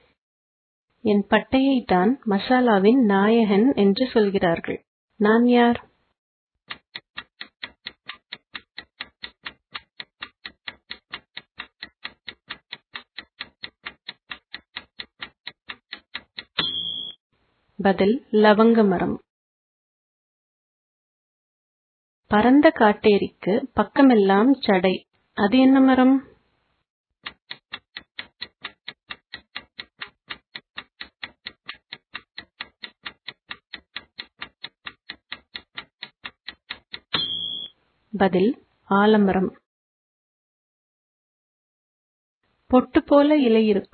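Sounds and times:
clock ticking: 0:06.7 - 0:17.1, 0:27.2 - 0:37.7
short high-pitched ring: 0:16.6 - 0:17.2, 0:37.2 - 0:37.7.

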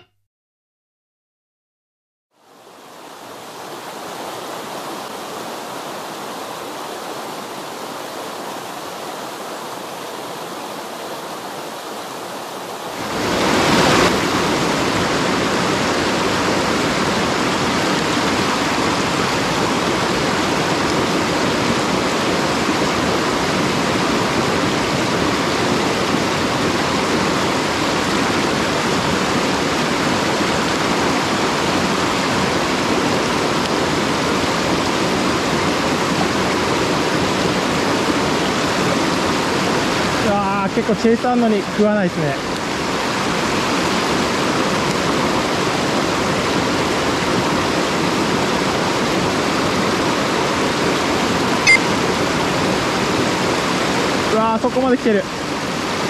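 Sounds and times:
stream rushing over rocks: 0:02.4 - 0:56.0.

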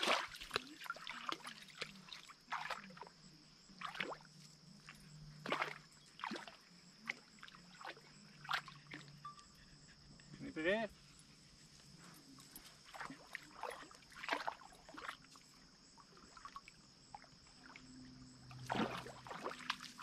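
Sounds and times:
water splashing: 0:00.0 - 0:03.1, 0:03.7 - 0:09.1, 0:12.8 - 0:20.0.

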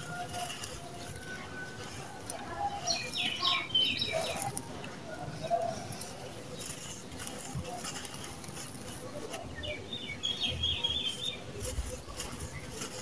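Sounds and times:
bird chirping: 0:00.0 - 0:13.0
dry cement mix crumbled by hand: 0:04.0 - 0:13.0.

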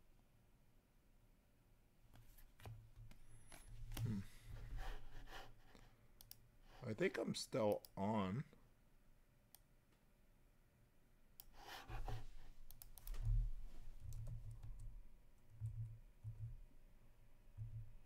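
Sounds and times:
keyboard and mouse clicks: 0:11.4 - 0:16.6.

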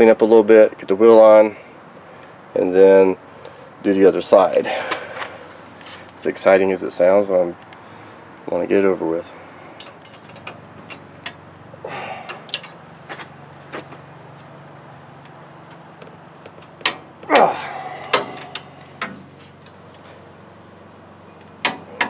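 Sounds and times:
tools clinking on metal: 0:12.2 - 0:12.8, 0:16.6 - 0:19.2.

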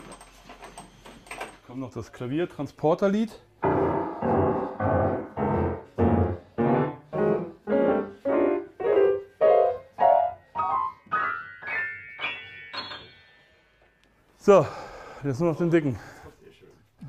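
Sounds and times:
piano note clusters: 0:03.6 - 0:13.6.

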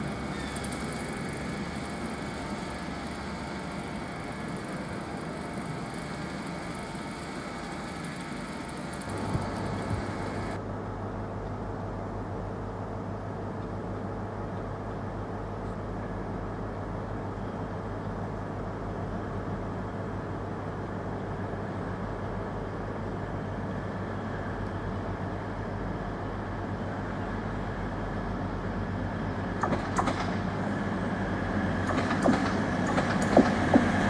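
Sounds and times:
diesel train engine drone: 0:00.0 - 0:34.0.

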